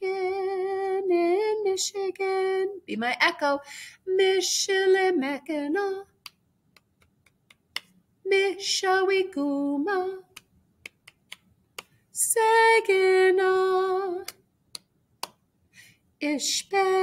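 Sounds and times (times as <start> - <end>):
woman singing unaccompanied: 0.0 - 6.2, 8.3 - 10.4, 12.2 - 14.4, 16.2 - 17.0
finger snaps: 6.2 - 8.0, 10.3 - 12.0, 14.2 - 15.4.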